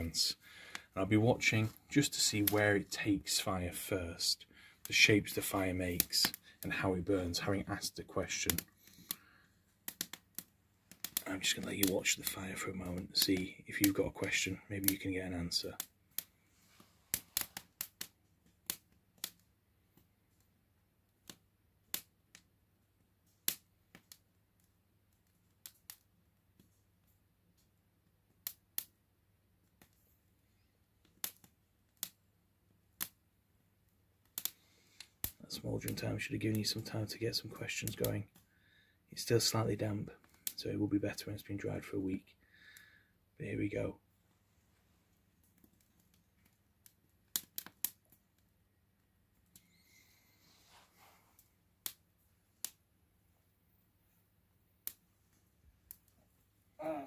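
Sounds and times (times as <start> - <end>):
branches crackling and popping: 0.0 - 3.6, 4.2 - 20.1, 23.3 - 26.1, 29.7 - 32.2, 34.2 - 38.4, 39.2 - 42.2, 45.4 - 48.5
faint hiss: 49.6 - 51.6.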